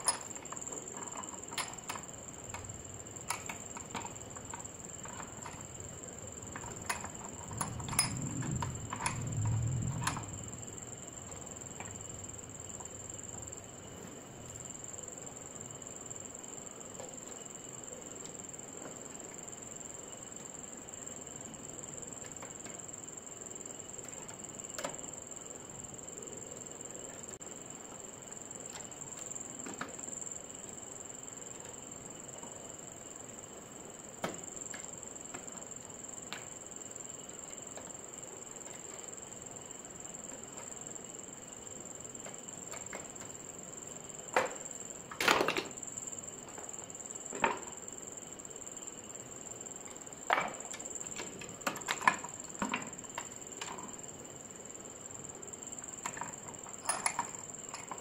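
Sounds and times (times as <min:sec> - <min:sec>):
steady high whine: 0:00.0 - 0:16.1.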